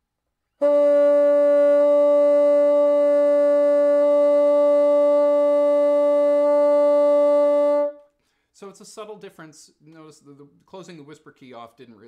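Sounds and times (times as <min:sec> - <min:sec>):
bassoon holding a long note: 0:00.6 - 0:08.0.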